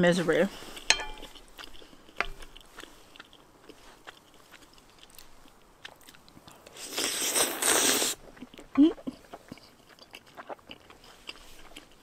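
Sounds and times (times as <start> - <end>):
person chewing: 0.5 - 12.0
loud slurp of noodles: 6.8 - 8.2.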